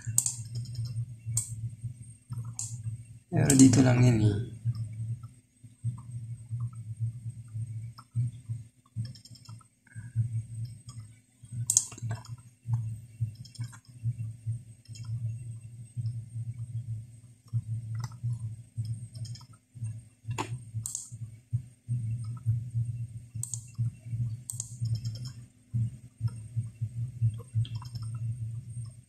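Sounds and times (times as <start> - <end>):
computer mouse clicking: 0.0 - 1.6, 2.3 - 2.8, 4.7 - 6.9, 7.5 - 15.2, 17.4 - 21.2, 22.1 - 22.6, 23.4 - 25.4, 26.2 - 29.0
low pulsing hum: 0.0 - 29.0.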